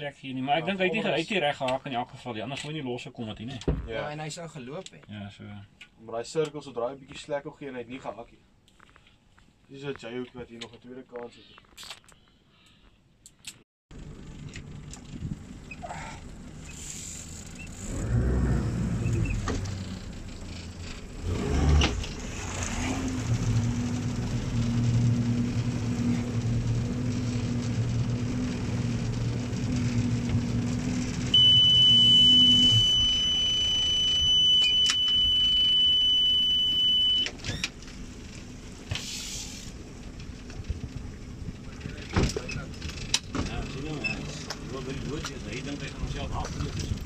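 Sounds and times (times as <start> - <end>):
high electronic beep: 31.4 - 37.3.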